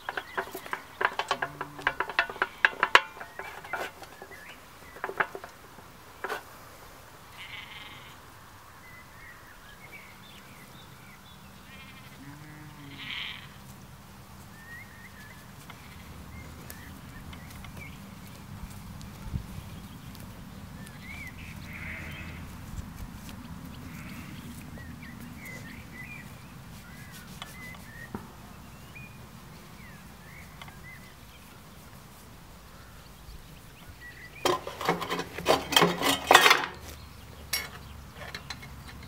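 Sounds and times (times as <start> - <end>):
faint birdsong: 0.0 - 39.0
sheep bleating: 7.3 - 8.2, 11.6 - 13.6, 21.6 - 22.5.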